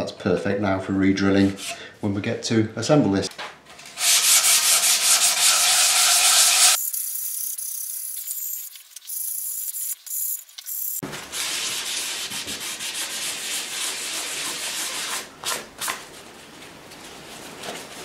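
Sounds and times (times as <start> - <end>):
sandpaper scratching on wood: 4.0 - 15.6.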